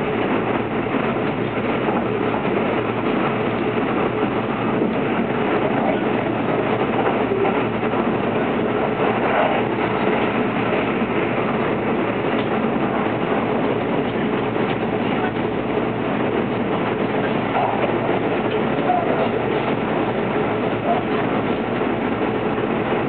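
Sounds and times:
train rumbling on rails: 0.0 - 23.0.

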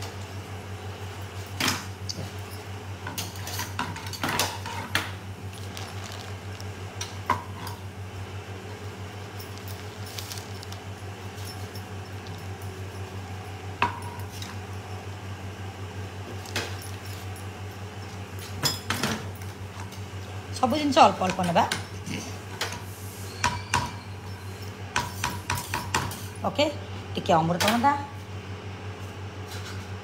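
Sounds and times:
steady low hum: 0.0 - 21.2.

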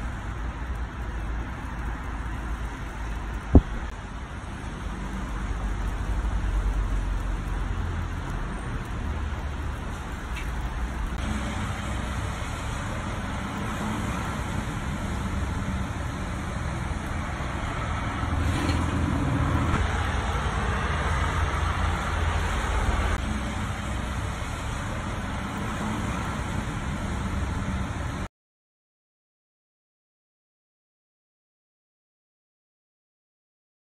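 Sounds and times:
low rumble: 5.6 - 25.7.

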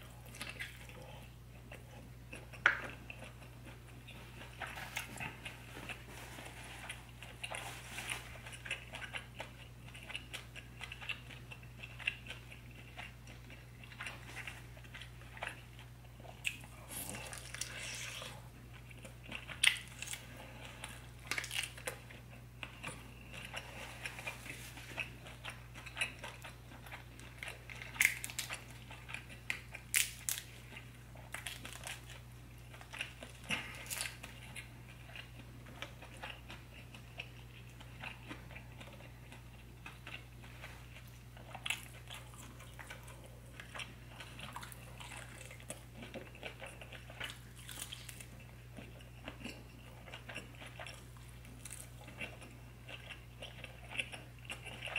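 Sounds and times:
close chewing of seafood: 0.0 - 54.9
low steady hum: 0.0 - 54.9.

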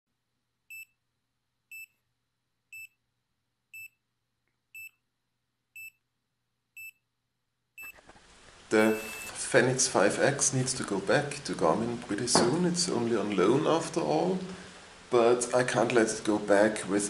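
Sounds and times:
high-pitched electronic beeps: 8.8 - 9.3.

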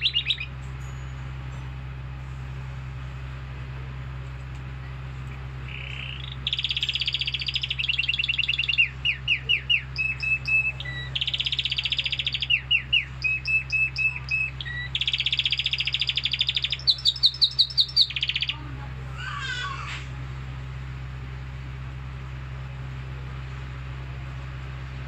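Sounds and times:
canary singing: 0.0 - 2.4, 4.7 - 20.2
low hum: 0.0 - 25.0.

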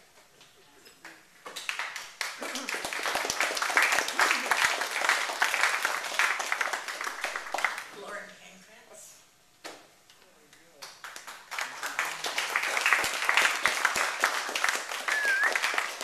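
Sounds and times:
audience applauding: 1.6 - 7.9, 11.0 - 16.0.

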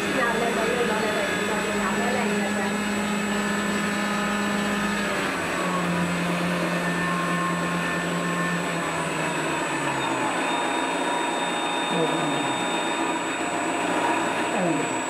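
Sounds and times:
thin high whines: 6.8 - 15.0
simulated aircraft engine drone: 10.2 - 15.0.

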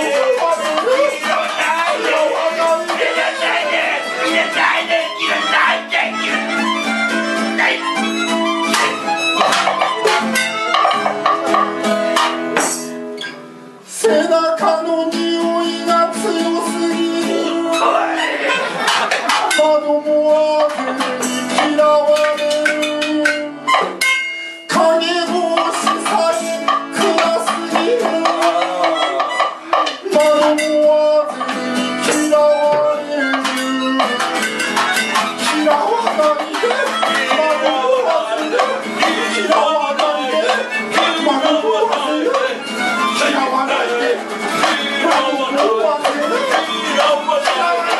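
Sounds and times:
man singing: 0.0 - 8.2, 12.5 - 13.0, 13.8 - 23.8, 24.6 - 47.9
melodica holding notes: 0.0 - 12.1, 25.8 - 30.7, 31.3 - 47.9
hand drums: 0.0 - 13.1, 18.7 - 47.9
strummed acoustic guitar: 0.0 - 47.9.

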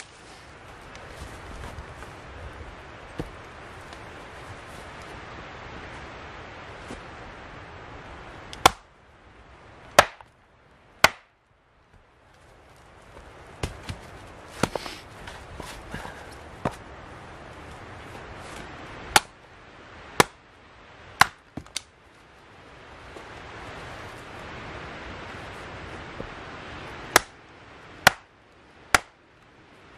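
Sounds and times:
axe chopping wood: 8.6 - 8.9, 9.9 - 10.3, 11.0 - 11.3, 14.6 - 14.9, 19.1 - 19.4, 20.2 - 20.4, 21.2 - 21.9, 27.1 - 27.4, 28.0 - 28.3, 28.9 - 29.2.

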